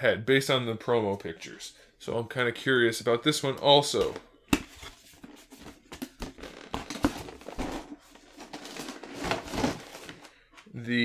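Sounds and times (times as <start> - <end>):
packaging rustling and crinkling: 4.8 - 10.7.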